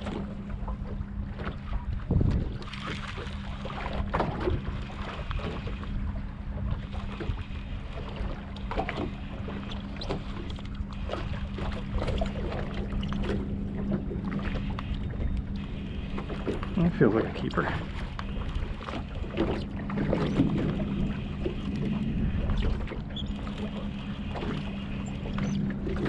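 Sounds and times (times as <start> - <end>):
motor hum: 0.0 - 26.0
water slapping boat hull: 0.0 - 26.0.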